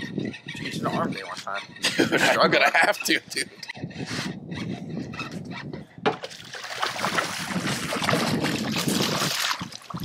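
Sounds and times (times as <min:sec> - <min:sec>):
fish thrashing water splashing: 0:06.3 - 0:10.0.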